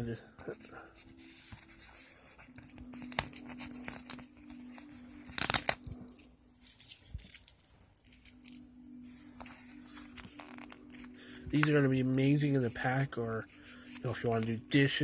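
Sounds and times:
packaging crinkling: 0:02.5 - 0:08.6, 0:09.7 - 0:11.7
packaging ripping: 0:02.5 - 0:08.6, 0:10.0 - 0:10.9.

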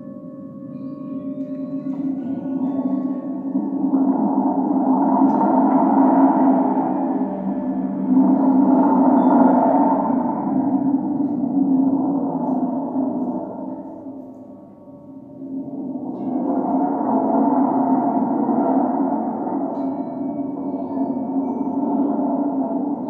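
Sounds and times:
singing bowls ringing: 0:00.0 - 0:11.4, 0:19.0 - 0:23.0
gong drone: 0:00.0 - 0:23.0.

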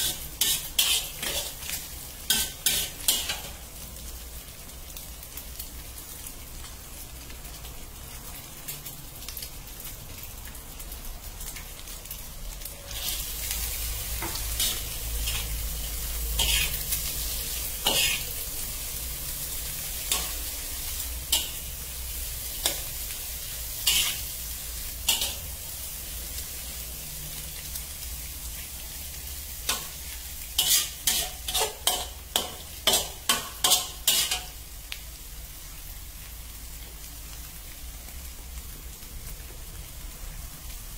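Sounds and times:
metal spatula scraping wok: 0:00.0 - 0:03.6, 0:12.9 - 0:18.9, 0:19.8 - 0:21.7, 0:23.7 - 0:25.6, 0:29.7 - 0:34.6
food sizzling in a wok: 0:00.0 - 0:40.9.

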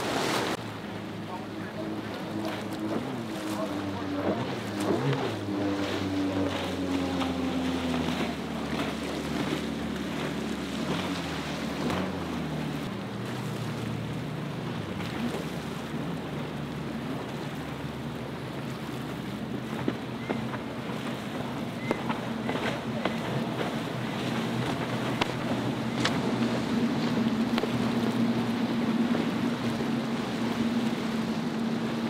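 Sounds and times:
motorboat engine: 0:00.0 - 0:32.0
passing boat engine: 0:00.0 - 0:32.0
waves splashing: 0:00.0 - 0:32.0.

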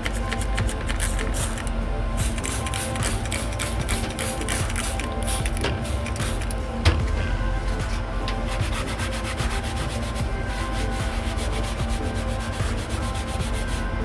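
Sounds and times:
paper towel scrubbing a board: 0:08.5 - 0:13.9.

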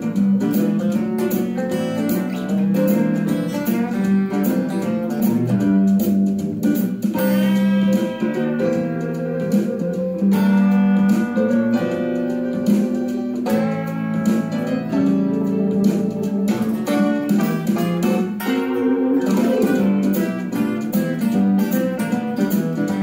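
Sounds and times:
electric guitar country swing lead: 0:00.0 - 0:23.0.

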